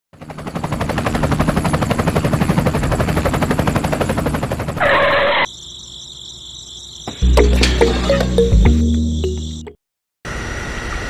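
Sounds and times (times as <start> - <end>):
helicopter rotor chopping: 0.1 - 5.5.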